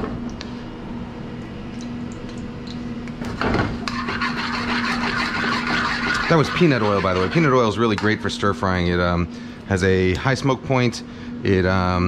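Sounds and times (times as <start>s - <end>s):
steady hum: 0.0s - 12.0s
metal spoon scraping a wok: 3.9s - 7.6s.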